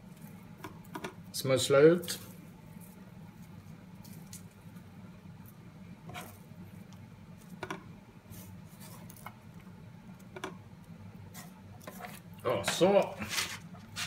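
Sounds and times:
onion pieces pattering: 0.0 - 7.7
low steady hum: 0.0 - 14.0.

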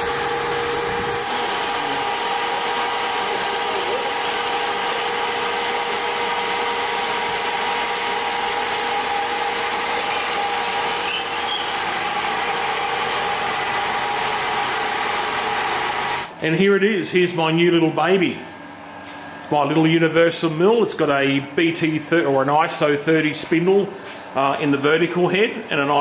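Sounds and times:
hydraulic whine: 0.0 - 16.4
truck engine running: 0.0 - 16.4.

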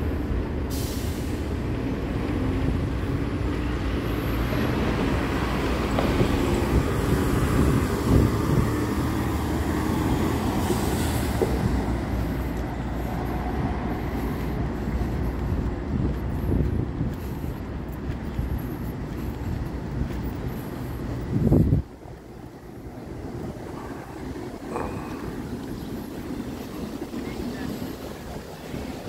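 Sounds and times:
heavy vehicle rumbling: 0.0 - 29.0.

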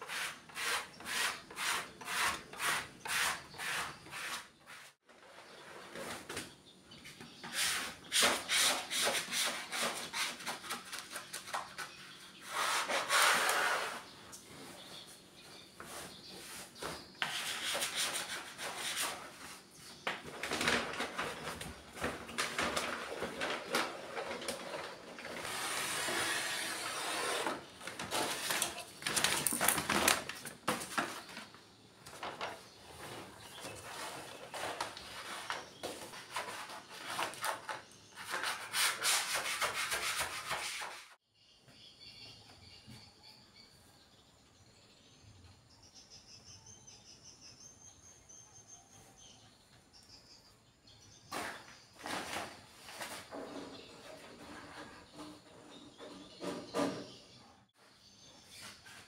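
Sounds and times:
squeegee scraping over vinyl: 12.4 - 14.1.

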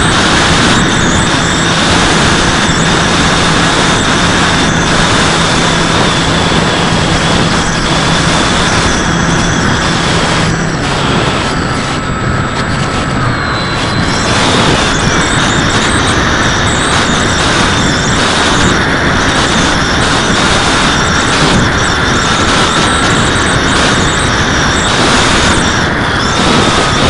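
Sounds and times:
electric motor whine: 0.0 - 27.0
wind rush: 0.0 - 27.0.

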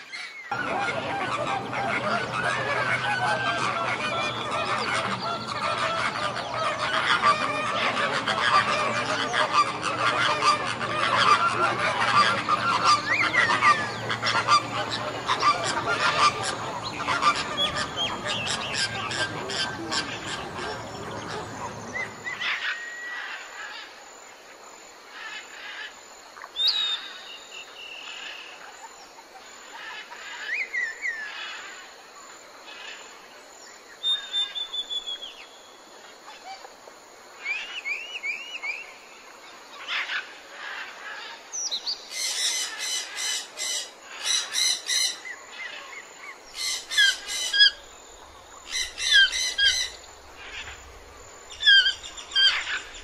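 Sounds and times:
birds whistling and chirping: 26.6 - 28.0, 34.0 - 35.6, 37.5 - 39.0, 48.7 - 50.0.

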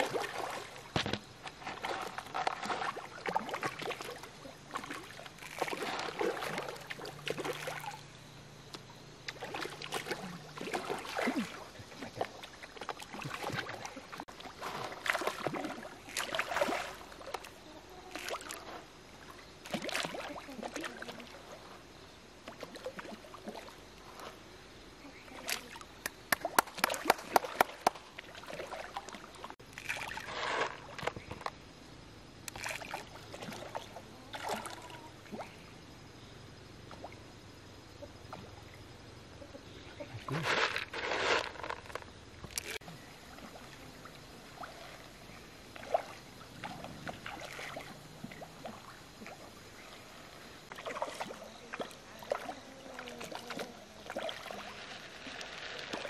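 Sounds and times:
fish splashing at water surface: 0.0 - 8.1, 9.3 - 17.5, 25.4 - 31.2
sharp pops and smacks on water: 26.0 - 28.3.

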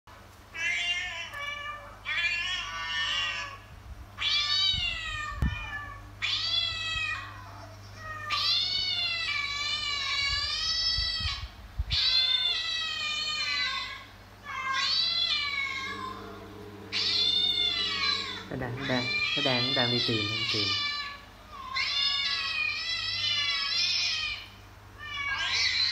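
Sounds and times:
cat meowing: 4.2 - 25.9.

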